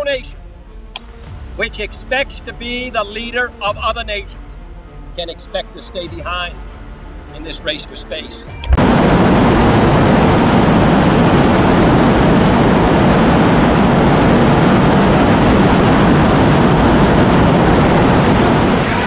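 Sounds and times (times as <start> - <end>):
rocket engine roaring: 8.7 - 19.0.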